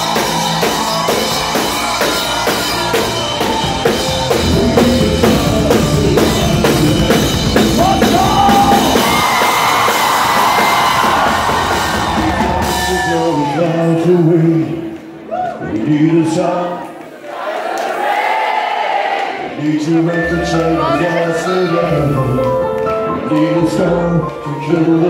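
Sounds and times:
drum kit beat: 0.0s - 13.2s
rock band playing live: 0.0s - 13.6s
person singing: 2.5s - 9.1s, 20.0s - 25.0s.

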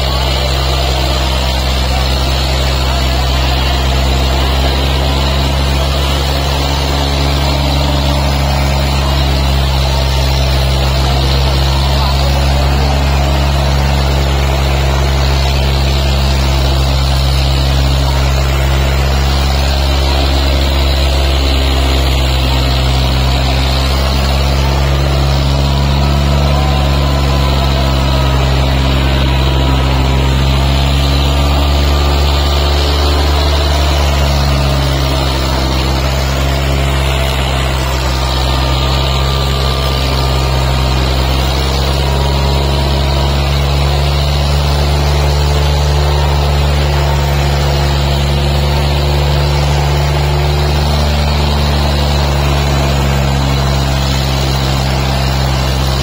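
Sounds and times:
tractor diesel engines at high throttle: 0.0s - 56.0s.

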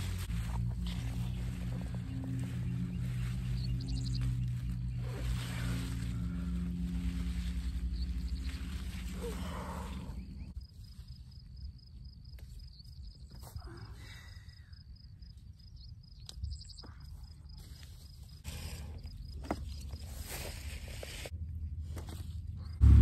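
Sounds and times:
plants rustling and clicking: 0.0s - 10.6s
low rumble: 0.0s - 10.7s, 18.4s - 23.0s.

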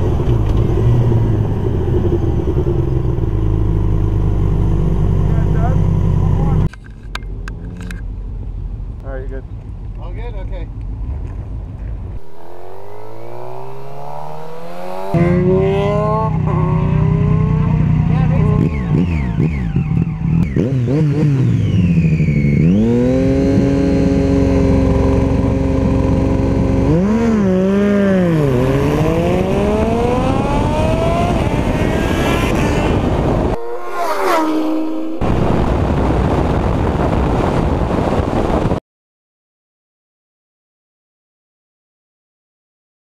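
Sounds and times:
engines revving at full throttle: 0.0s - 6.7s, 12.2s - 37.2s
road noise: 0.0s - 38.8s
heavy wind rush: 28.4s - 38.8s.

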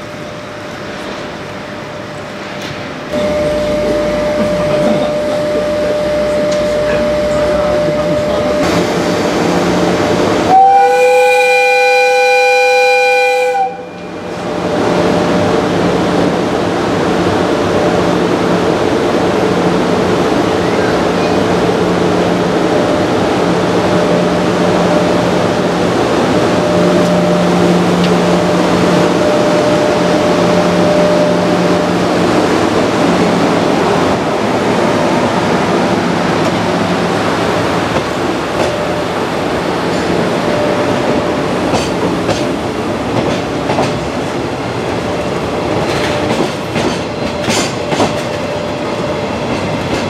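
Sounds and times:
locomotive running noise: 0.0s - 10.8s, 14.0s - 50.0s
locomotive horn blast: 3.2s - 8.8s, 10.5s - 14.1s.

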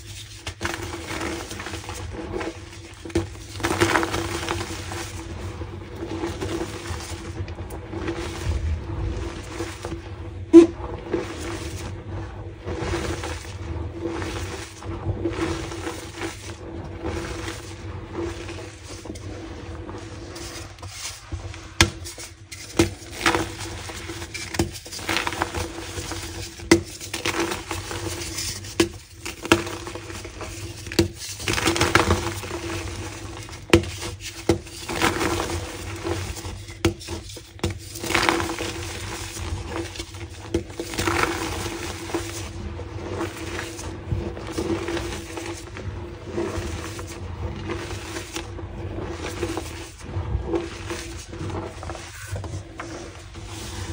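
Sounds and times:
steady low hum: 0.0s - 24.3s
chalk crunching and crumbling: 0.0s - 53.9s.

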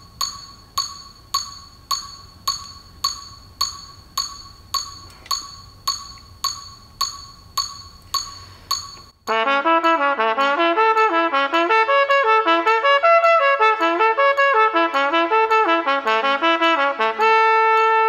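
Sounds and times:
metronome clicking: 0.0s - 9.4s.

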